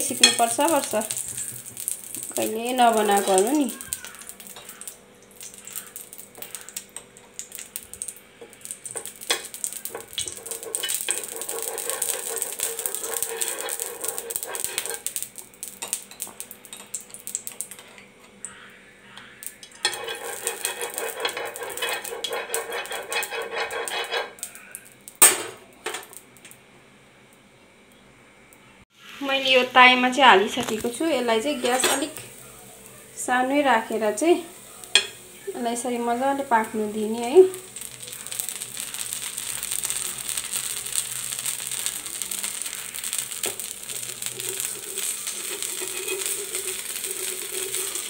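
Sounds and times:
fat sizzling: 0.0 - 26.7, 28.9 - 48.0
spoon scraping a pan: 0.1 - 7.1, 8.4 - 15.2, 15.8 - 24.6, 30.3 - 32.4, 37.8 - 48.0.

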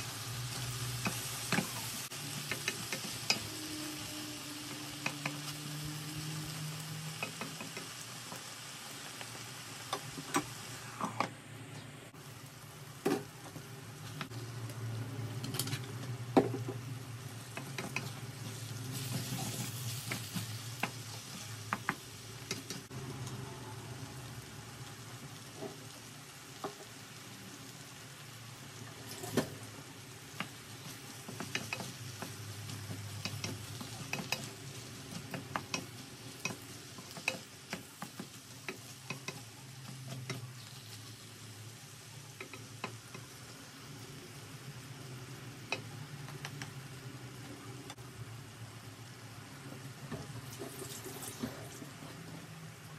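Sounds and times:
food sizzling in a wok: 0.0 - 52.9.

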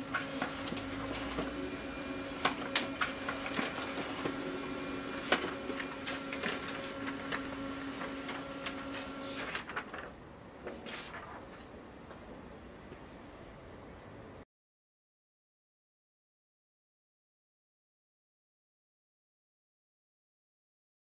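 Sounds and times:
laser printer humming: 0.0 - 9.5
printer clicks: 2.2 - 9.6.

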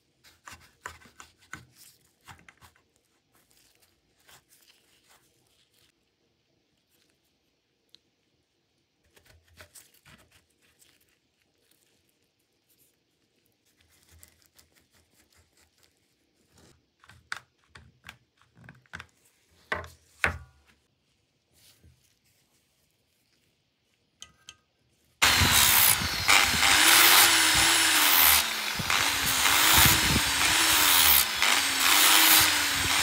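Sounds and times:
rustling: 0.2 - 8.0, 9.1 - 16.8, 19.1 - 24.2.

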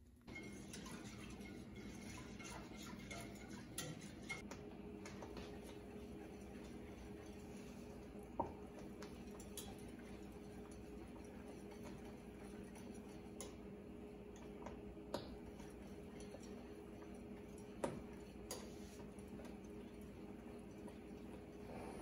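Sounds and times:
low steady hum: 0.0 - 22.0
whisk clicking against metal pan: 0.3 - 4.5, 8.4 - 13.6.

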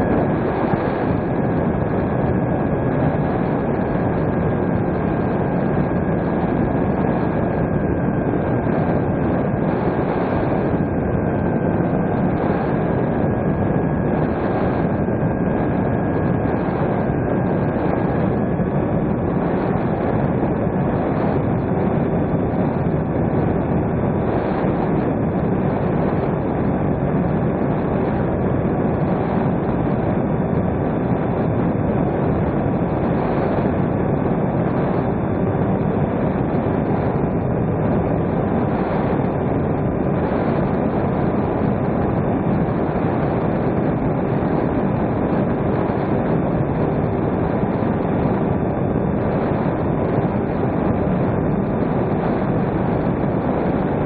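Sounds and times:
wind rush on microphone: 0.0 - 54.0.

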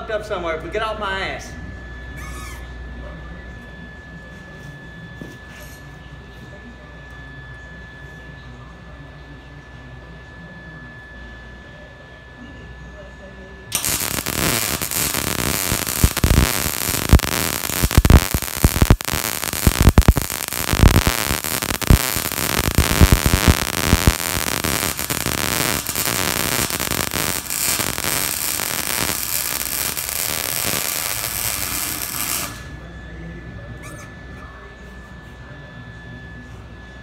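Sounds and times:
welding arc crackling: 13.7 - 32.8.

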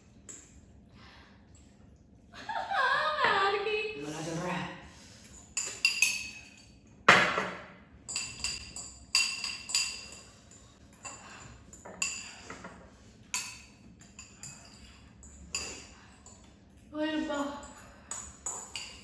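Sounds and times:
forks clinking against glass bowls: 5.2 - 6.8, 8.0 - 19.0.

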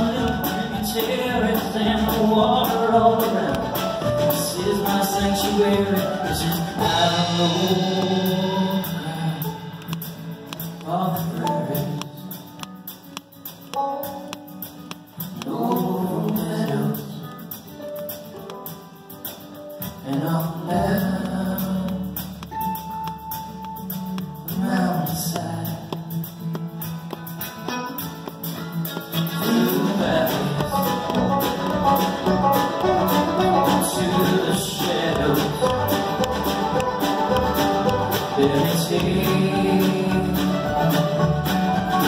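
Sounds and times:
person singing: 0.0 - 12.5, 15.2 - 17.6, 19.9 - 22.6, 23.8 - 26.2, 29.1 - 42.0
banjo: 0.0 - 12.7, 26.4 - 42.0
upright bass: 0.0 - 17.6, 19.8 - 42.0
acoustic guitar: 0.0 - 42.0
mandolin: 0.0 - 42.0.

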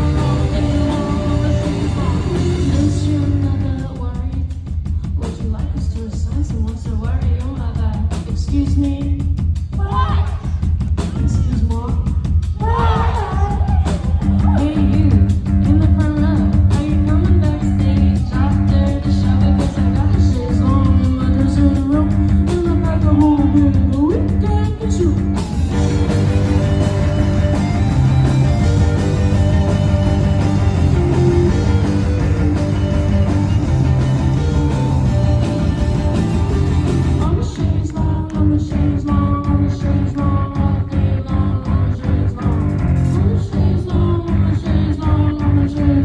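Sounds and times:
electric guitars: 0.0 - 3.7, 13.7 - 37.8
woman singing: 0.0 - 26.0, 37.2 - 46.0
bass guitar: 0.0 - 46.0
drums: 0.0 - 46.0.

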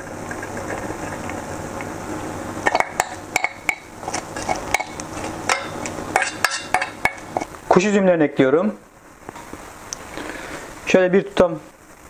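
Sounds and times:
metal spoon clinking on pots: 2.7 - 7.5.

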